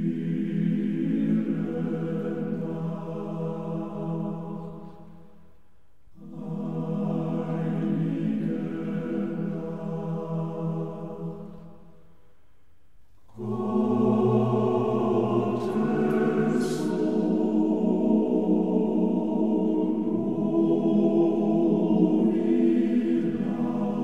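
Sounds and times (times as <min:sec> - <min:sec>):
choir singing sustained chords: 0:00.0 - 0:24.0.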